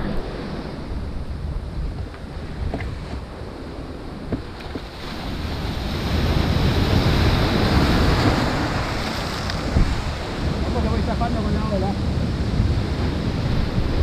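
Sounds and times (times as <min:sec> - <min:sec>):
wave breaking on rocks: 0:04.2 - 0:14.0.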